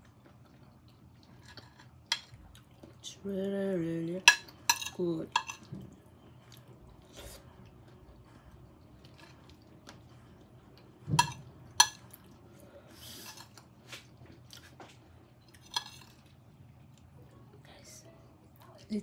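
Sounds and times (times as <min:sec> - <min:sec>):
quiet chewing: 0:00.0 - 0:03.0, 0:05.4 - 0:17.6
spoon scraping plate: 0:13.0 - 0:13.6.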